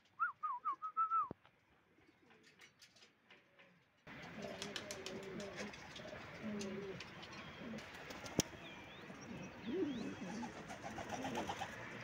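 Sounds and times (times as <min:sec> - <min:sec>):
pigeon cooing: 0:04.2 - 0:07.9, 0:09.2 - 0:11.8.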